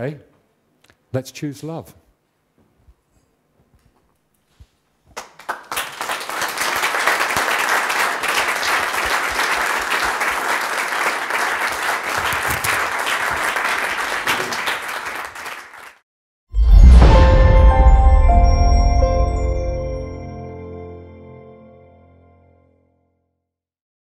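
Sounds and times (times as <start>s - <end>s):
crowd applauding: 5.2s - 16.0s.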